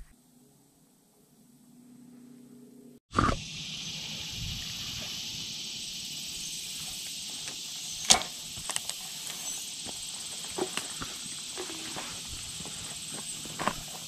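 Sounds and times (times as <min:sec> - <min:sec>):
insects droning: 0:03.2 - 0:14.0.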